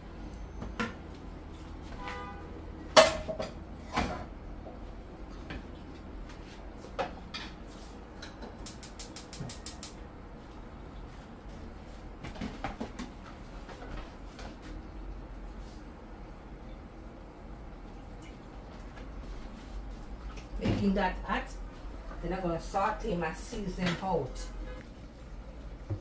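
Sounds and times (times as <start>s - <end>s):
pots and utensils knocking: 3.0s - 3.6s.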